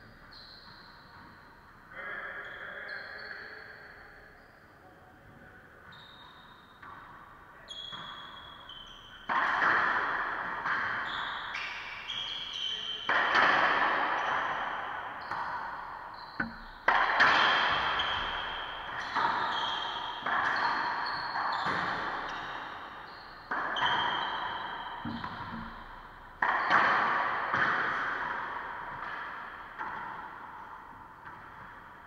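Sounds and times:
sneakers squeaking on floor: 0.0 - 4.7, 5.8 - 32.0
racquet hitting ball: 7.8 - 32.0
ball smacking court walls: 9.3 - 11.6, 13.1 - 15.7, 16.4 - 22.6, 23.5 - 30.6.

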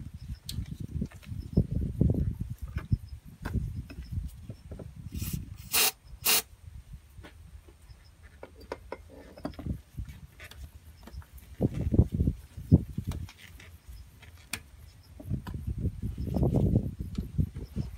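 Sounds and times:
loud rasping noises: 5.1 - 6.5
rubbing and scraping with clicks: 8.0 - 12.0, 13.0 - 14.7.

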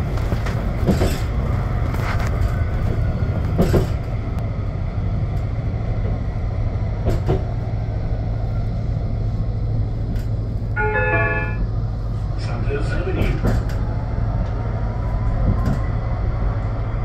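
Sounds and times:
tram running rumble: 0.0 - 17.0.

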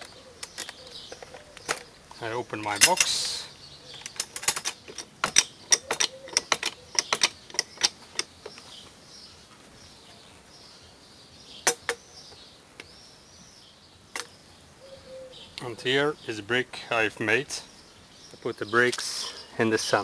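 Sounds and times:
sharp metal clicks and knocks: 0.0 - 8.7, 11.6 - 12.0
faint birdsong: 0.0 - 20.0.

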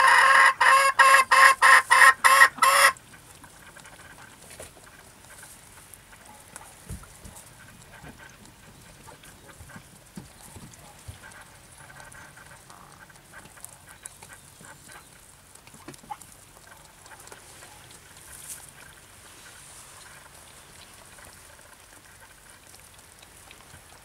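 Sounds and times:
kitten lapping milk: 3.0 - 24.0
rustling straw: 16.2 - 22.7.

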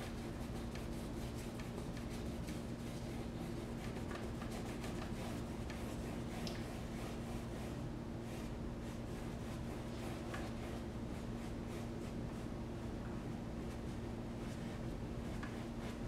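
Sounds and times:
steady low hum: 0.0 - 16.0
paintbrush stroking on canvas: 0.1 - 12.5.

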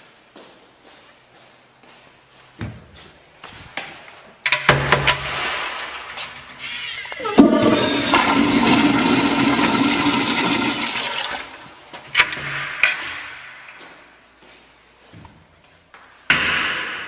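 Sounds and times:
toilet flushing: 6.5 - 11.8.

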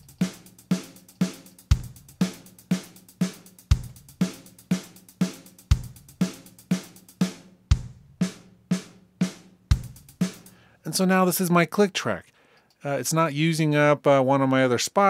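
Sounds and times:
light drum and hi-hat hits: 0.0 - 11.0
bass drum hits: 7.7 - 8.1, 9.7 - 10.2.

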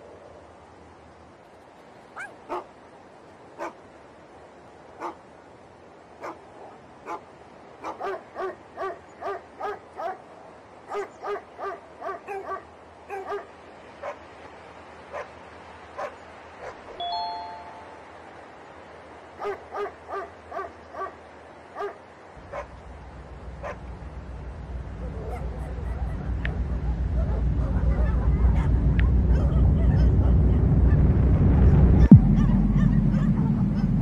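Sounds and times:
dog barking: 2.2 - 2.7, 3.6 - 3.8, 5.0 - 5.2, 6.2 - 10.3, 10.9 - 14.3, 15.1 - 15.4, 16.0 - 17.0, 19.4 - 21.2, 21.8 - 22.8, 23.6 - 23.8, 25.0 - 30.2, 32.0 - 33.9
two-note chime: 17.0 - 18.0
low rumble: 22.4 - 34.0.

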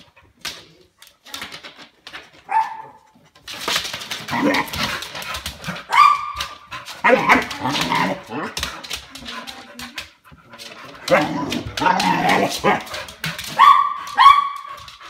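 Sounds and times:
dog barking: 2.5 - 3.0, 5.9 - 6.4, 13.5 - 14.8.

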